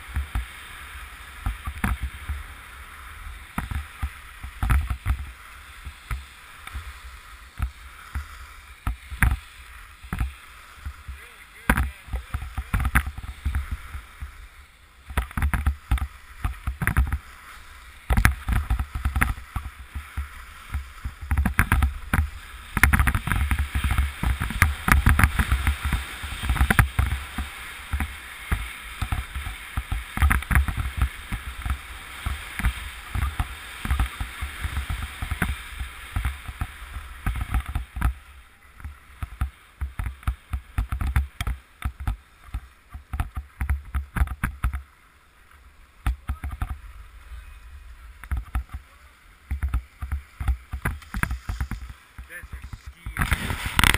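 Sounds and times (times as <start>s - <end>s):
skis scraping on snow: 0.0s - 53.9s
wind buffeting microphone: 52.6s - 53.9s.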